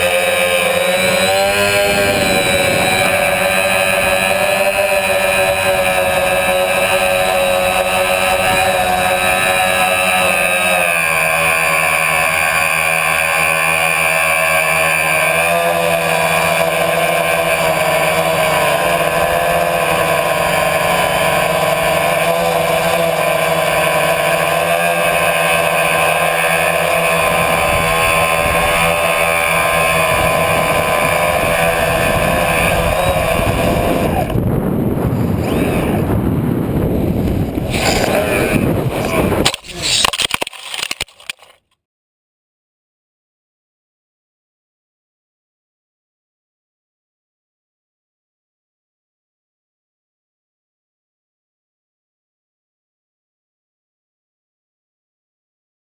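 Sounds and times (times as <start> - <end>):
electric motors and propellers whining: 0.0 - 41.6
rush of wind: 0.9 - 9.5, 27.2 - 29.0, 29.7 - 40.1.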